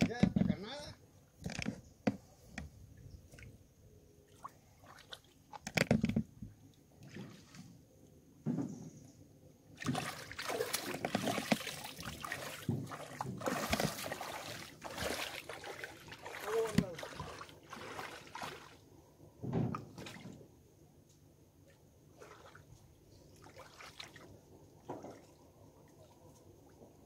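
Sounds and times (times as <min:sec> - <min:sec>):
feet splashing through water: 0:04.3 - 0:05.6, 0:09.8 - 0:18.8, 0:22.1 - 0:22.7, 0:23.4 - 0:26.2.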